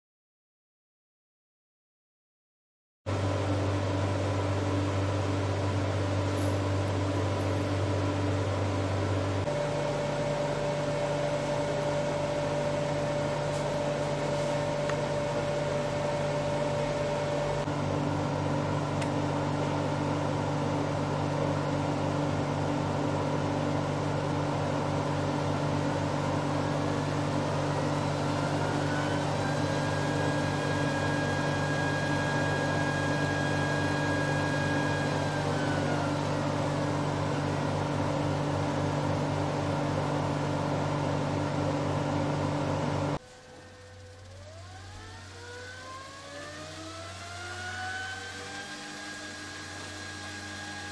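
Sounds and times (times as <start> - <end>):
lathe motor humming: 4.8 - 50.9.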